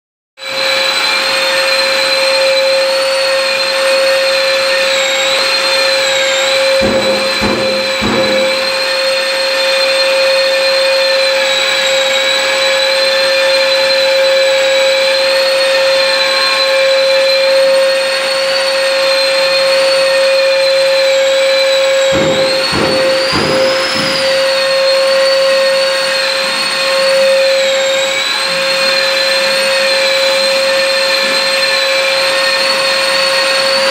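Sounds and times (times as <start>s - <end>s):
short knocks: 6.8s - 9.0s, 22.2s - 24.6s
drywall sander sanding wall: 6.8s - 9.1s, 22.2s - 24.6s.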